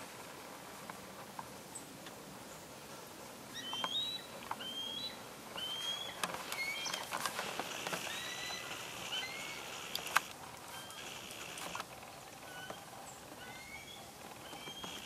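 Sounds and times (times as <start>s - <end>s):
bird whistling upward notes: 3.5s - 7.0s, 13.4s - 15.0s.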